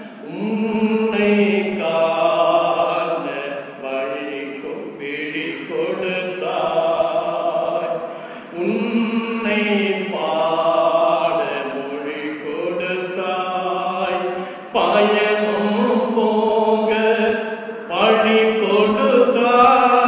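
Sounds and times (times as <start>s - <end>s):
man singing a prayer chant: 0.0s - 20.0s.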